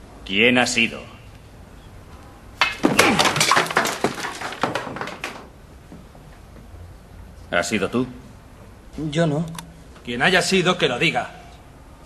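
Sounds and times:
crashing and breaking: 2.6s - 5.6s.

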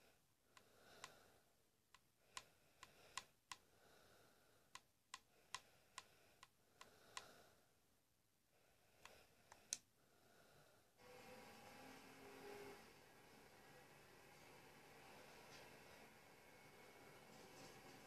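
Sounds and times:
faint sharp clicks: 4.7s - 7.3s, 9.0s - 9.9s.

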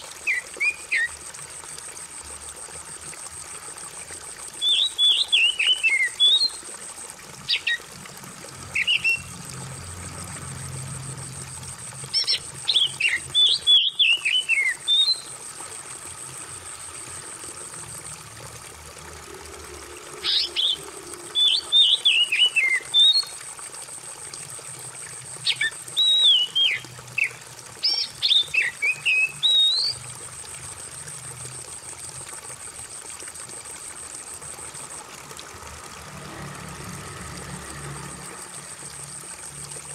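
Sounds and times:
running water trickling: 0.0s - 39.9s
bird singing whistled phrases: 4.6s - 6.6s, 8.8s - 9.3s, 12.2s - 15.3s, 21.4s - 23.3s, 25.5s - 26.8s, 27.8s - 30.0s.

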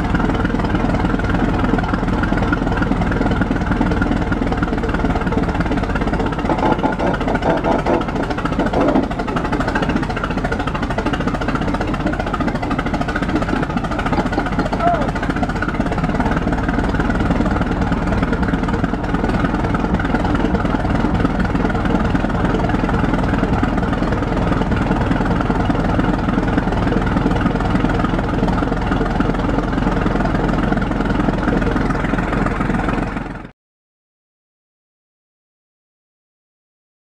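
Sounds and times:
tractor engine running: 0.0s - 33.5s.

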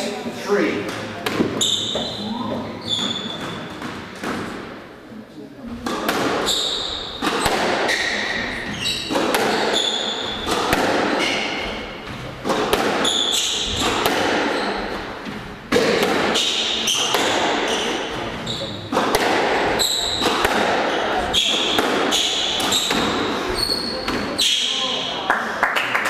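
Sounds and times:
squash ball knocks: 0.9s - 2.0s, 5.8s - 23.3s
shoe squeaks: 1.4s - 3.9s, 6.3s - 12.1s, 12.9s - 15.2s, 16.3s - 19.0s, 19.6s - 25.1s.

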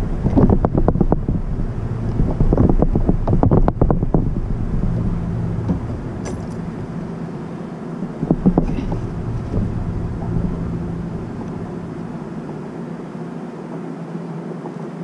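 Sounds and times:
wind buffeting microphone: 0.0s - 13.2s
rustling knocks: 0.3s - 12.8s.

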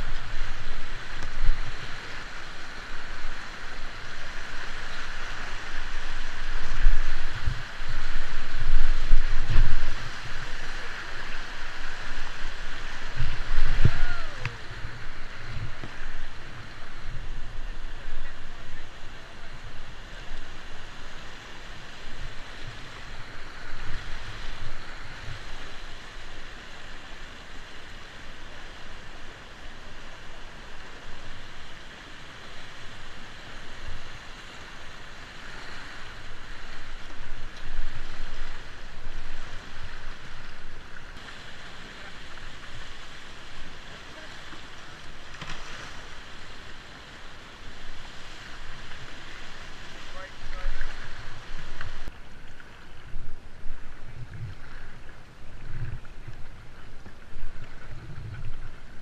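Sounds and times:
river rapids rushing: 0.0s - 52.8s
low rumbles on microphone: 6.3s - 11.3s, 12.0s - 19.8s, 53.0s - 59.0s.

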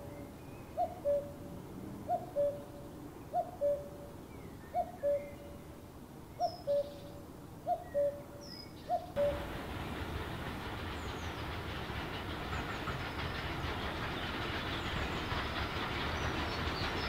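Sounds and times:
cuckoo calling: 0.0s - 1.5s, 2.1s - 4.1s, 4.7s - 5.7s, 6.4s - 9.5s.

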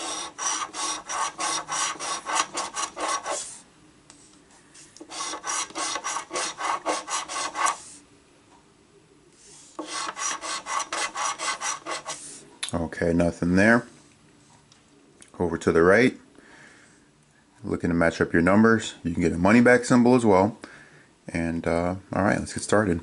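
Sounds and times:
coin scratching a scratch ticket: 0.0s - 3.6s, 5.1s - 7.9s, 9.8s - 12.3s.

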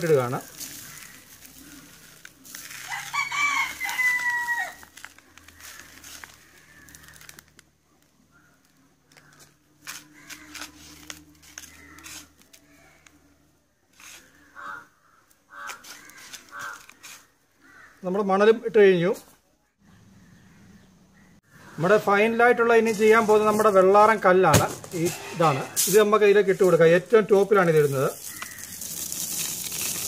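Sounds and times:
hands rustling and scraping sand: 0.0s - 4.3s, 9.8s - 12.5s, 14.0s - 14.5s, 15.7s - 17.3s
sand pouring into plastic bucket: 0.0s - 4.4s, 27.8s - 30.0s
rooster crowing: 2.7s - 4.9s.

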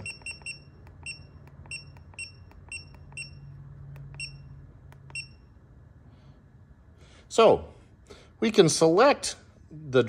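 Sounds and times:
short high beeps: 0.0s - 3.5s, 4.2s - 4.5s, 5.1s - 5.5s.

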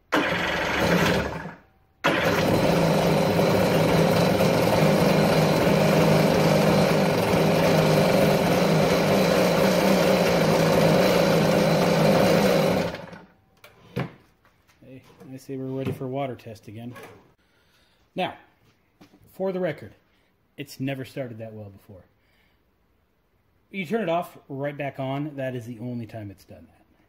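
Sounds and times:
two-stroke jet ski engine running: 0.1s - 13.2s.

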